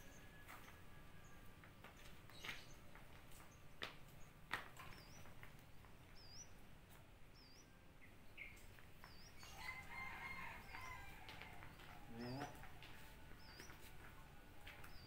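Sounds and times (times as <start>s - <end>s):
faint rooster crowing: 9.4s - 15.0s.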